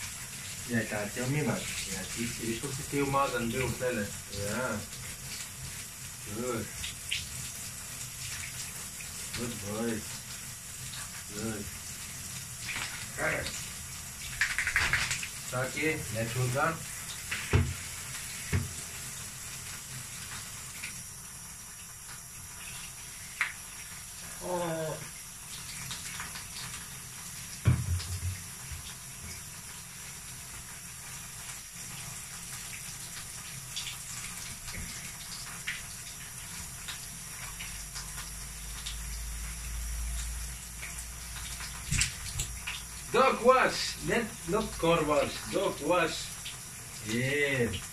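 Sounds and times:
water running into bathtub: 0.0 - 47.9
dull thump: 17.5 - 17.8, 27.6 - 28.4.

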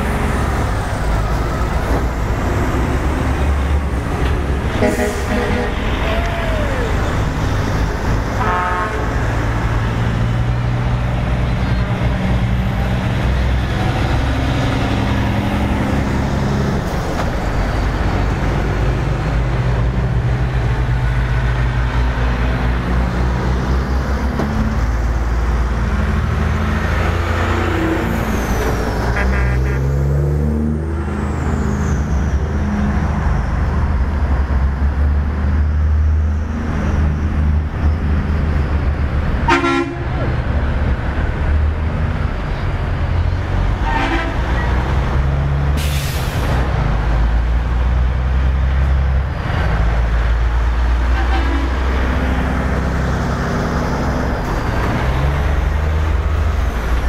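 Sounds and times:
heavy trucks driving past: 0.0 - 57.0
truck horn toots: 4.7 - 6.0, 8.4 - 9.3, 29.1 - 30.1, 39.5 - 40.1, 43.8 - 44.6, 51.1 - 51.9.

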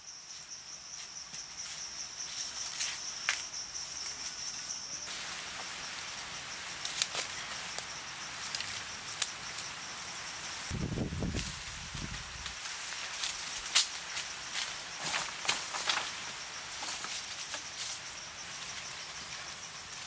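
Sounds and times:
forest ambience: 0.0 - 20.0
wooden poles and twigs clicking: 8.4 - 9.6, 13.2 - 14.0, 14.6 - 18.0.

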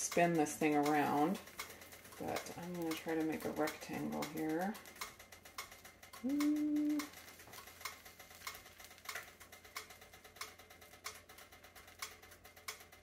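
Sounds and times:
faint even ticking: 0.0 - 13.0
person humming: 6.2 - 7.1.

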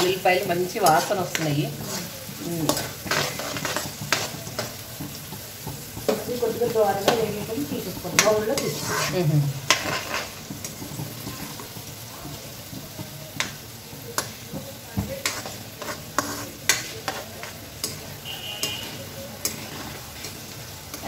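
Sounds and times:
metal ladle scraping pan: 0.0 - 4.8, 7.0 - 11.8, 15.2 - 21.0
garlic sizzling in oil: 0.0 - 21.0.

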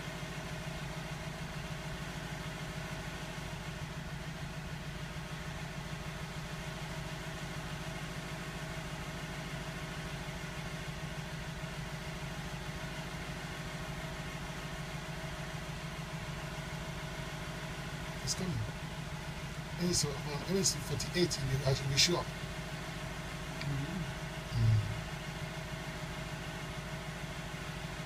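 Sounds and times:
low mechanical hum: 0.0 - 28.0.

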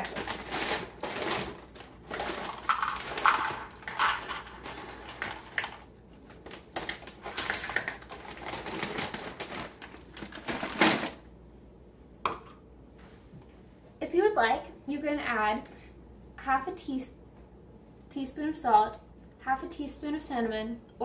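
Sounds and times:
plastic bag crinkling: 0.0 - 11.2
pretzels rattling into bowl: 0.0 - 11.2.

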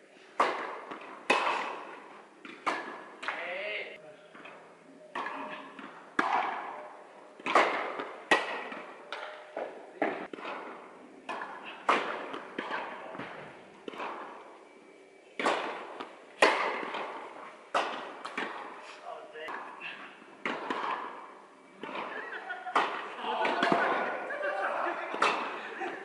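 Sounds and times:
racket hitting tennis ball: 0.4 - 3.4, 4.4 - 14.8, 15.4 - 26.0
ball bouncing on court: 15.4 - 18.7.

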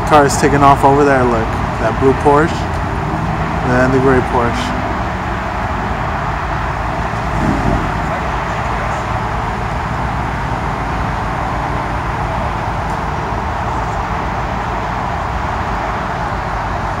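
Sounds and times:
distant car traffic: 0.0 - 17.0
wind on microphone: 7.1 - 9.2.

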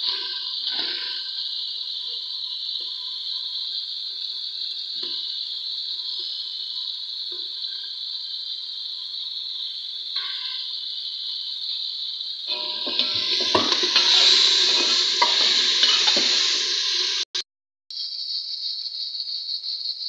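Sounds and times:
gas burner hissing: 0.0 - 17.4
pan knocks: 12.5 - 16.6.

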